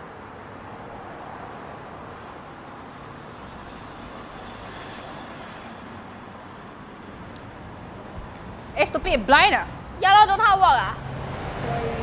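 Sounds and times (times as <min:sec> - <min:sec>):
road traffic rushing past: 0:00.0 - 0:12.0.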